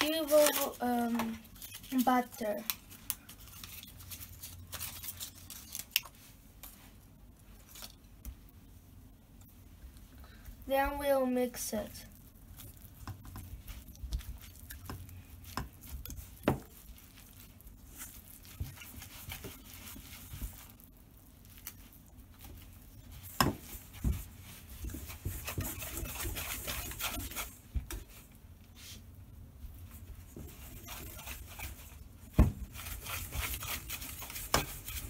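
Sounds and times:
whisk scraping in metal bowl: 0:13.3 - 0:20.7, 0:22.6 - 0:28.2, 0:30.2 - 0:35.0.

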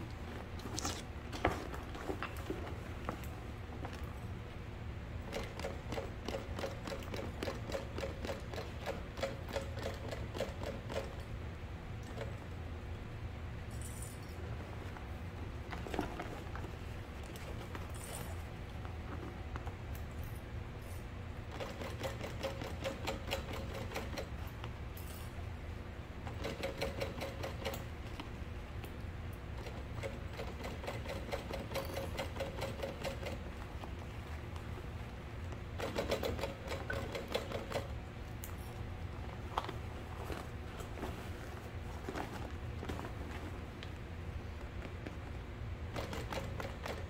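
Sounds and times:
sewing machine needle clatter: 0:05.3 - 0:11.2, 0:21.5 - 0:24.3, 0:26.3 - 0:27.9, 0:29.6 - 0:33.4, 0:35.8 - 0:37.9, 0:45.9 - 0:47.0.

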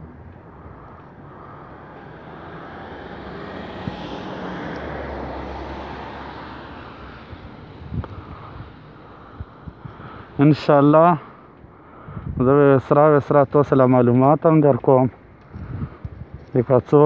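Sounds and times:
car driving past: 0:00.5 - 0:09.2.

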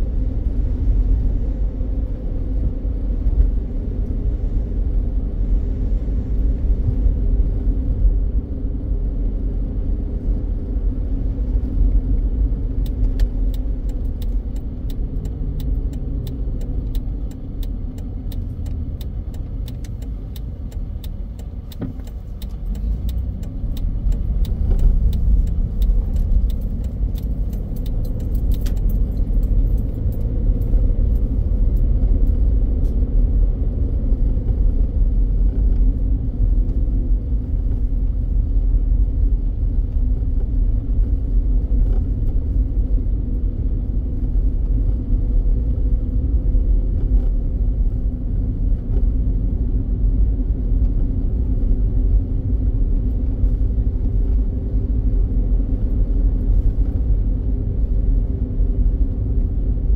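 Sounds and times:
car engine and tyre rumble: 0:00.0 - 0:59.9
light rattling clicks: 0:12.8 - 0:32.4.

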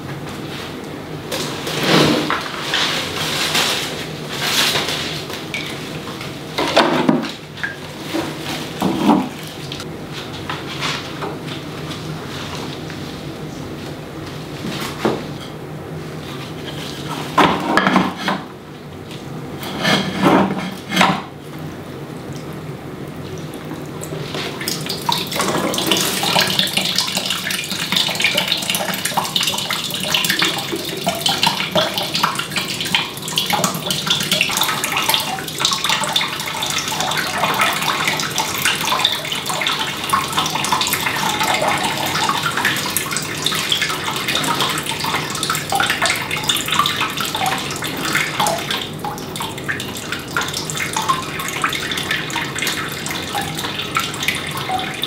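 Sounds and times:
water pouring and splashing: 0:01.3 - 0:09.9, 0:23.3 - 0:55.0.

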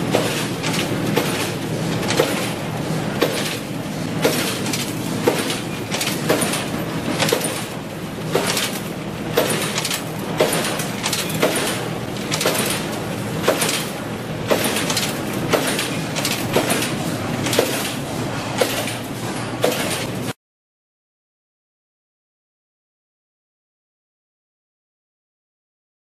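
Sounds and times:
wire cutting machine running: 0:00.0 - 0:20.4.

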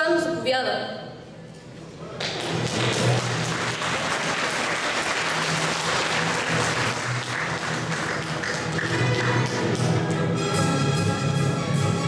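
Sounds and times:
audience applauding: 0:02.1 - 0:09.9
music playing: 0:02.3 - 0:12.0.

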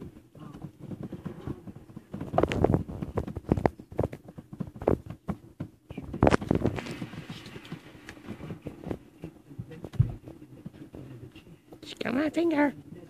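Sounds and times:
puppies scuffling and pawing: 0:00.0 - 0:13.0.

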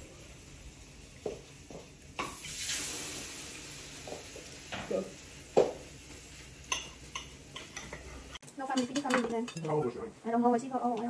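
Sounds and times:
brief hiss: 0:02.2 - 0:05.2
dishes knocking and clinking: 0:05.6 - 0:05.8, 0:06.7 - 0:09.9.

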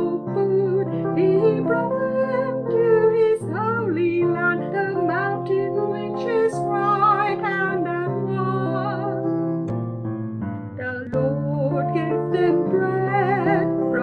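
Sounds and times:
woman singing with vibrato: 0:00.0 - 0:09.1, 0:10.8 - 0:14.0
sustained keyboard chords: 0:00.0 - 0:14.0.

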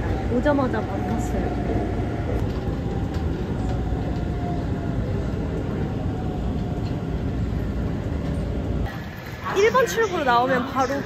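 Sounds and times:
train rumbling with faint whine: 0:00.0 - 0:11.0.

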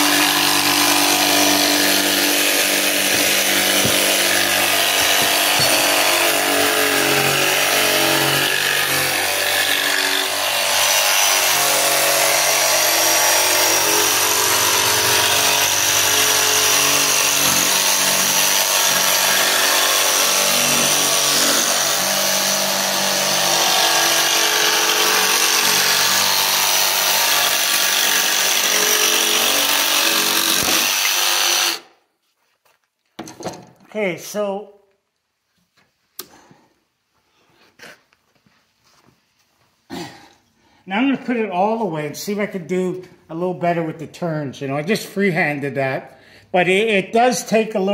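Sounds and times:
jigsaw cutting plywood: 0:00.0 - 0:31.9.

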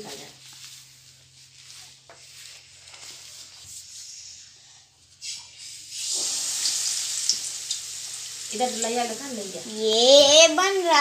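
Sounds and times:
batter frying in hot oil: 0:05.4 - 0:11.0.

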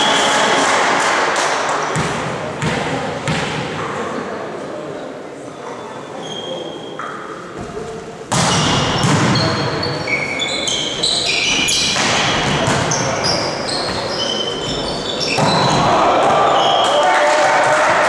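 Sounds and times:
shoes squeaking on court floor: 0:05.8 - 0:17.0.

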